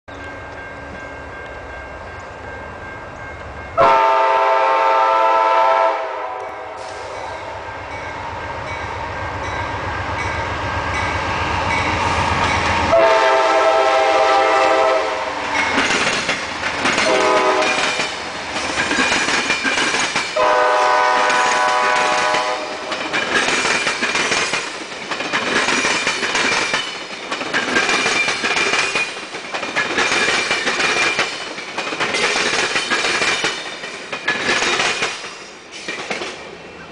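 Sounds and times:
diesel locomotive engine rumble: 0.1s - 36.9s
train horn blasts: 3.8s - 7.6s, 12.9s - 15.4s, 17.0s - 18.0s, 20.4s - 22.9s
train wheels clattering over rail joints: 15.5s - 36.5s.

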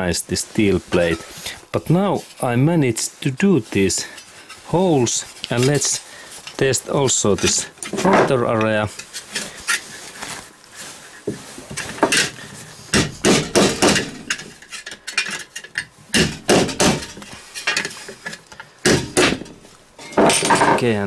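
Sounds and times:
hammer striking nail: 13.0s - 14.2s, 16.2s - 17.2s.

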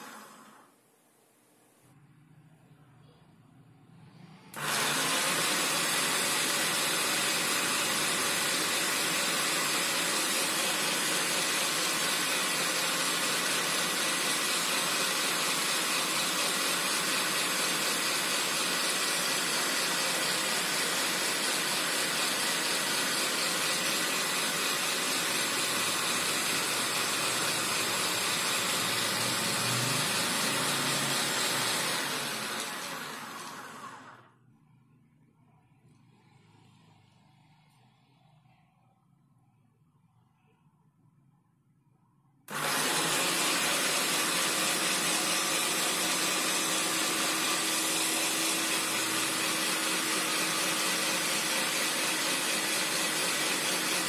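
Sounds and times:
food processor motor spinning: 0.0s - 0.7s, 4.5s - 34.3s, 42.5s - 54.0s.

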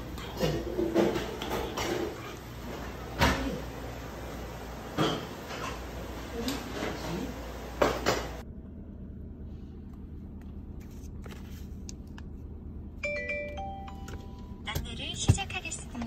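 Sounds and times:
low steady hum: 0.0s - 16.0s
dishes and cutlery clattering: 0.2s - 2.8s.

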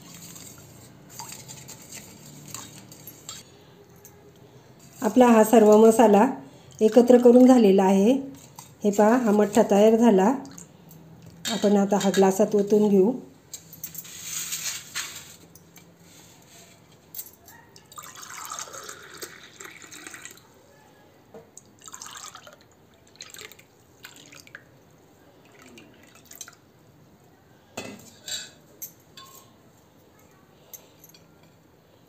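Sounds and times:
liquid pouring into glasses: 17.9s - 20.5s, 21.6s - 24.7s, 25.4s - 26.6s.

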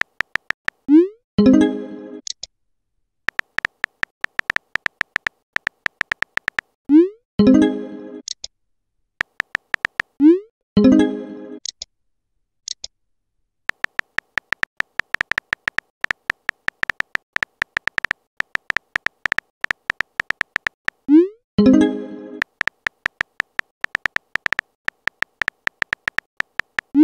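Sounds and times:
keyboard tap clicks: 0.0s - 0.8s, 3.3s - 6.7s, 9.2s - 10.1s, 13.7s - 21.0s, 22.4s - 27.0s.

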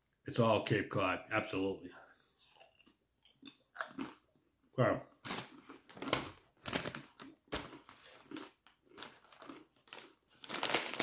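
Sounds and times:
chip bags crinkling: 5.2s - 11.0s
crunching potato chips: 5.2s - 11.0s.

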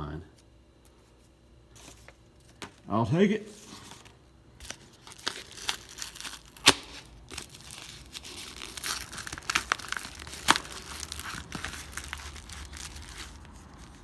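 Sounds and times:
paper envelope crinkling: 3.6s - 14.0s.

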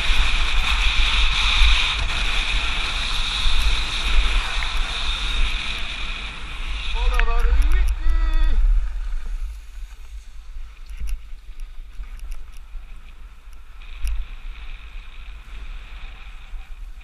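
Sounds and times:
skis hissing over snow: 0.0s - 17.0s
wind buffeting microphone: 0.0s - 17.0s
light clicks: 10.8s - 12.7s.

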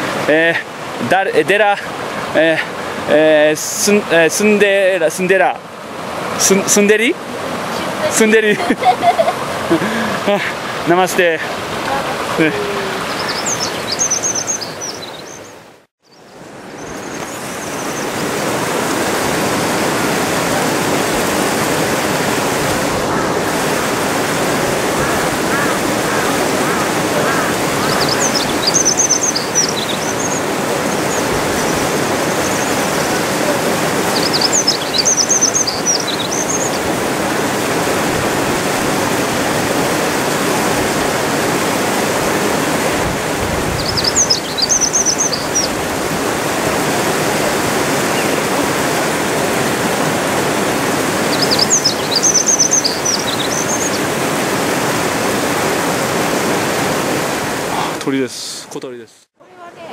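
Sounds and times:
flowing water rushing: 0.0s - 58.8s
songbird singing high notes: 12.6s - 18.1s, 25.5s - 36.8s, 43.8s - 45.8s, 51.3s - 54.0s.

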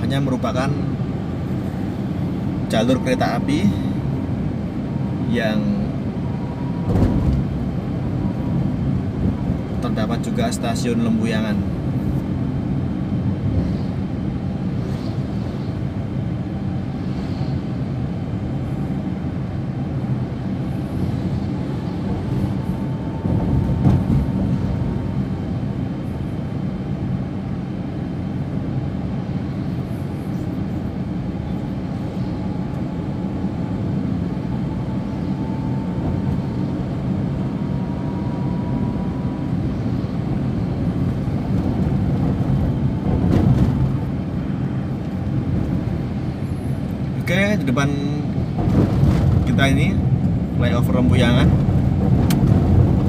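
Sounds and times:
car engine and tyres rumbling: 0.0s - 53.0s.

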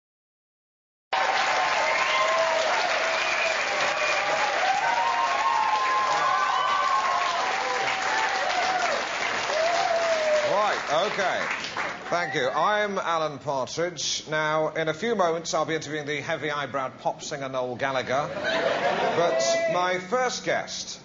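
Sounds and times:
audience applauding and cheering: 1.1s - 12.6s.

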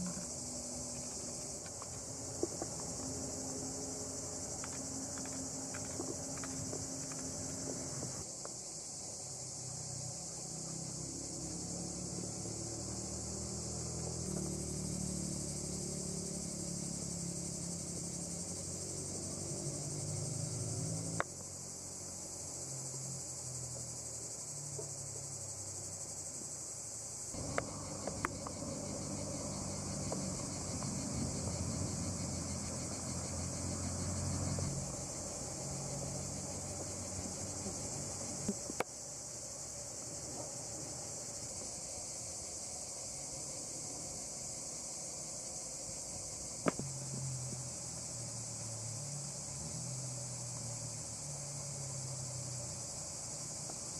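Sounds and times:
insects chirring: 0.0s - 53.9s.

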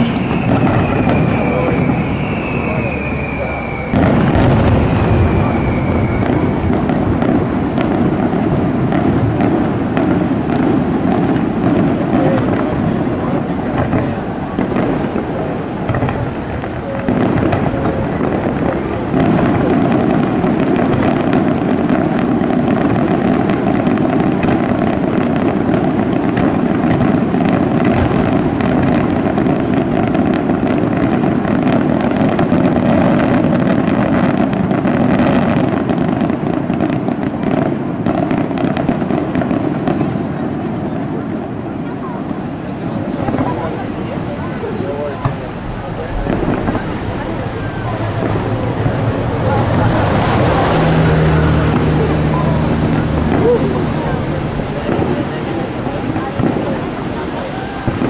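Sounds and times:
falling firework whistle: 0.0s - 10.1s
fireworks bursts and bangs: 0.0s - 58.0s.

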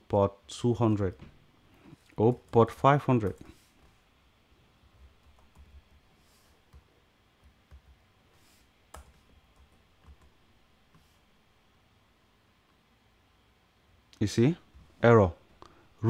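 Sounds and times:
computer keyboard keystrokes: 8.9s - 10.3s.

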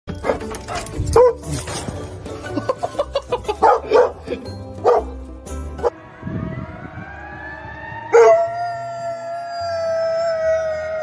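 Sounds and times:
dog howling: 8.1s - 11.0s.

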